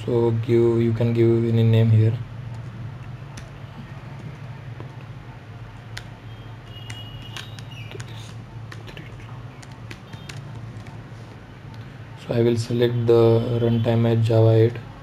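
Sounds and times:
steady low hum: 0.0s - 15.0s
computer keyboard typing: 2.4s - 11.9s.

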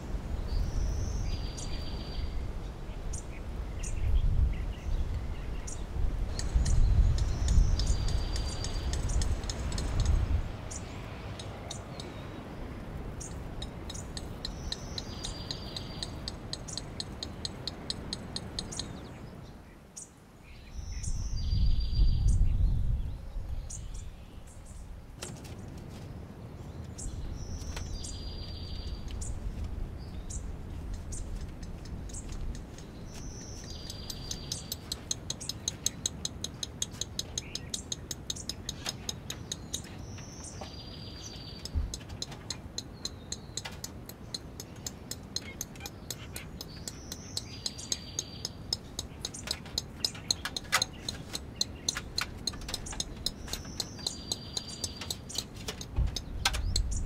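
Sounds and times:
bird singing with ticking trill: 0.4s - 24.8s, 27.0s - 57.0s
steady low rumble: 26.1s - 36.0s.

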